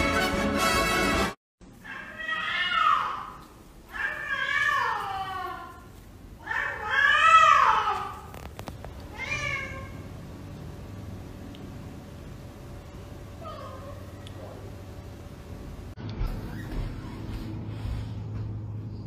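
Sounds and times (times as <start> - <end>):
cat meowing: 9.1 - 10.0.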